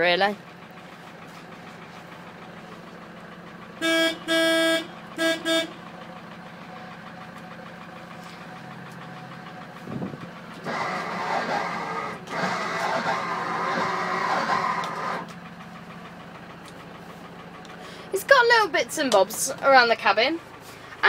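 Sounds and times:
diesel engine idling: 0:00.0 - 0:21.0
car horn toots: 0:03.8 - 0:05.8.

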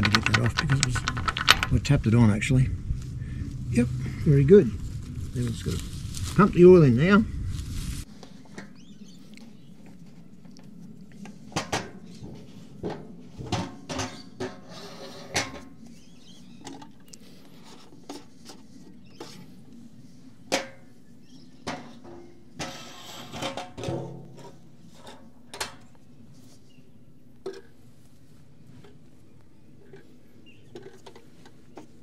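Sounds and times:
oil pump clunks and clicks: 0:00.0 - 0:02.2.

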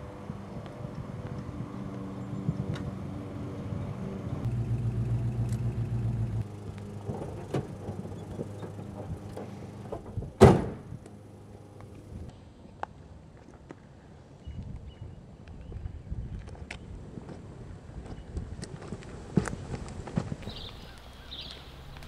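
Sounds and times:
car engine idling: 0:01.6 - 0:12.3
car door slamming: 0:07.1 - 0:11.0.

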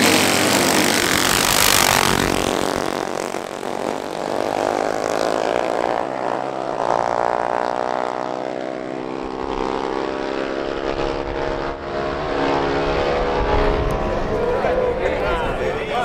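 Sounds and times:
small engines whining: 0:00.0 - 0:07.2, 0:09.0 - 0:16.0.

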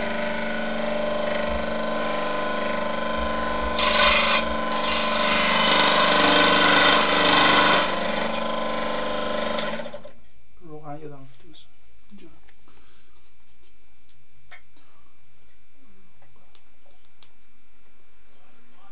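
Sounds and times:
saw blade cutting metal sheet: 0:00.0 - 0:08.6
scroll saw buzzing: 0:00.0 - 0:10.2.

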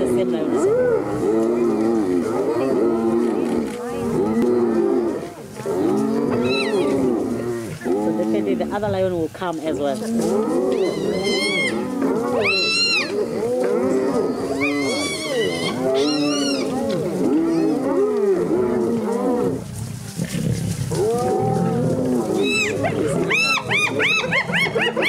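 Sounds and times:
lions growling calls: 0:00.0 - 0:08.6, 0:10.0 - 0:25.0
hyenas yelping and whooping: 0:06.3 - 0:07.4, 0:10.4 - 0:18.6, 0:20.9 - 0:25.0.

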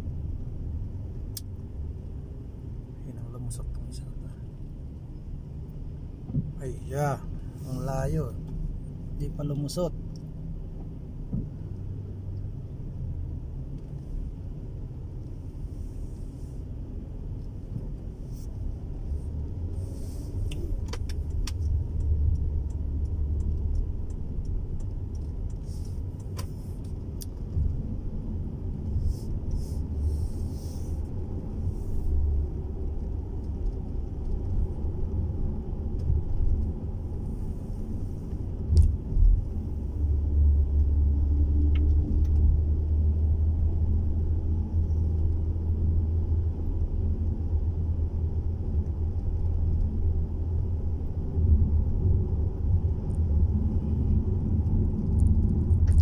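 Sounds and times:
car engine and tyres rumbling: 0:00.0 - 0:56.0.

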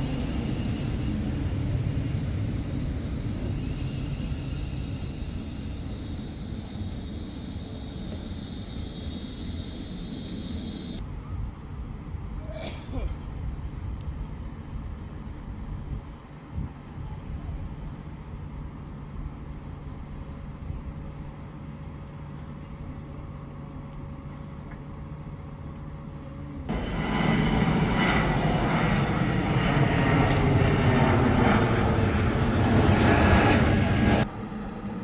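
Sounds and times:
electric train humming: 0:00.0 - 0:11.1
jet airliner climbing overhead: 0:00.0 - 0:13.9, 0:16.7 - 0:35.0.

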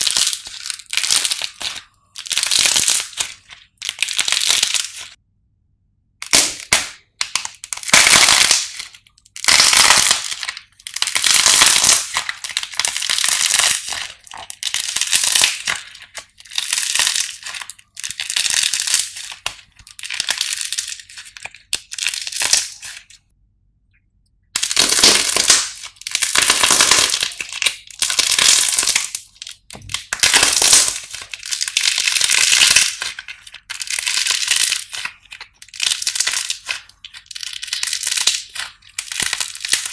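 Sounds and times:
hardened clay cracking and crunching: 0:00.0 - 0:05.2, 0:06.2 - 0:39.9.

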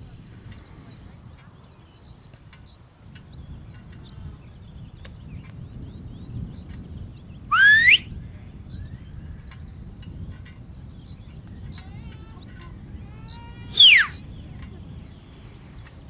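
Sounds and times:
low rumble of wind: 0:00.0 - 0:16.0
faint bird chirps: 0:07.3 - 0:09.8, 0:11.0 - 0:15.9
sharp whistle commands: 0:07.5 - 0:08.1, 0:13.7 - 0:14.2.

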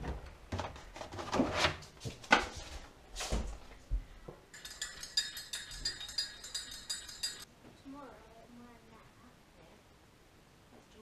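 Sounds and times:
teaspoon clinking in mug: 0:04.5 - 0:07.5.

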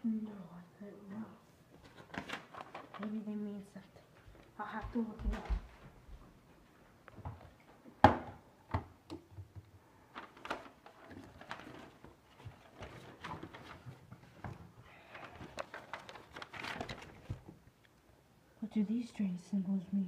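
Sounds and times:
book pages flipping: 0:01.7 - 0:03.3, 0:10.1 - 0:18.0.

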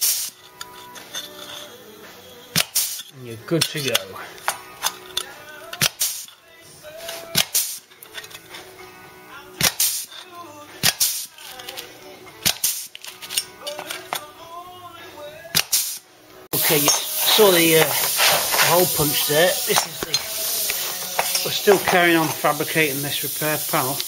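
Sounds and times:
background music: 0:00.0 - 0:24.0
hole punch snapping through steel: 0:02.6 - 0:06.4, 0:07.3 - 0:08.4, 0:09.6 - 0:10.2, 0:10.8 - 0:14.3, 0:15.5 - 0:15.9.

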